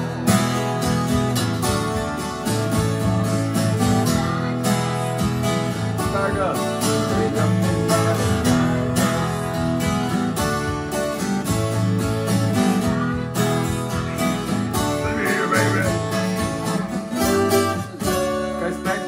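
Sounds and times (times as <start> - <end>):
twelve-string acoustic guitar strumming: 0.0 - 19.0
man singing: 6.0 - 9.6, 15.0 - 16.3, 17.7 - 19.0.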